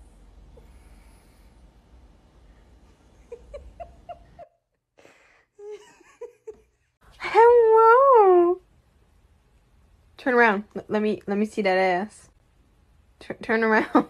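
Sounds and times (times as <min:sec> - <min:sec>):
person giggling: 0:03.1 - 0:04.7, 0:05.6 - 0:06.8.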